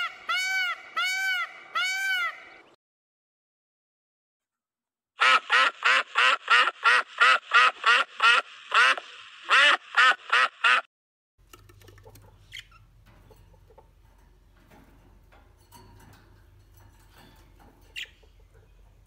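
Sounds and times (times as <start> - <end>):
ducks quacking: 5.2 - 10.9.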